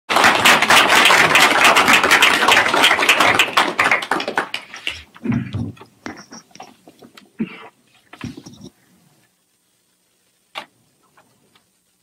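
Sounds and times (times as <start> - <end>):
audience applauding: 0.1 - 5.2.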